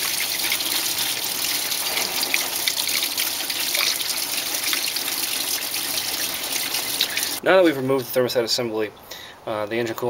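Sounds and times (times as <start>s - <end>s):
coolant pouring and splashing: 0.0s - 7.4s.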